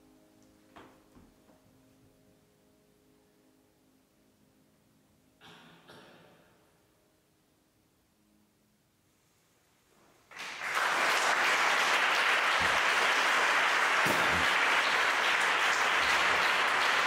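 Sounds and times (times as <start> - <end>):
audience applause: 10.3 - 17.0.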